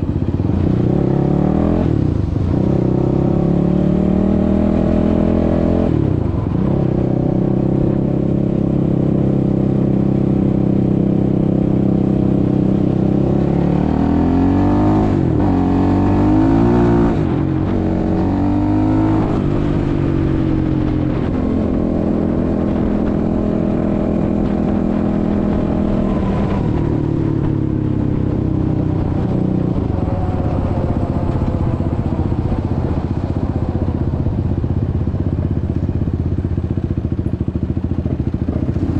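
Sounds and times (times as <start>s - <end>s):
quad bike engine revving: 0.0s - 35.8s, 37.8s - 38.9s.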